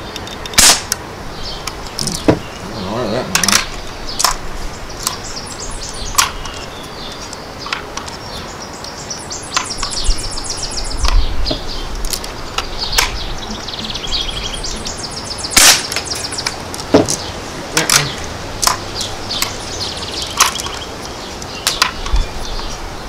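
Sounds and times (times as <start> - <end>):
songbirds trilling: 0.0 - 23.0
wind rumbling on microphone: 0.0 - 23.0
air rifle shot: 0.6 - 1.0, 15.6 - 16.0.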